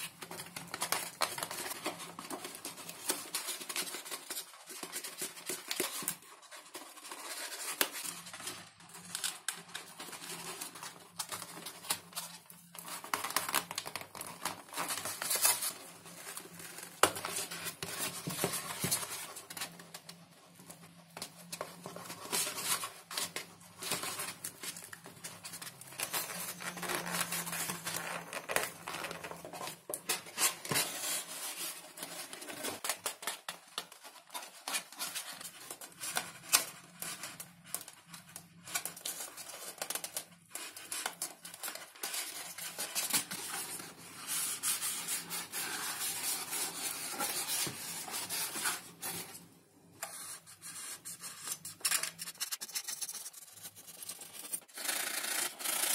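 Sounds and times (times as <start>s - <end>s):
crinkling: 0.0s - 55.9s
scratching on foam: 38.8s - 49.4s, 50.0s - 55.9s.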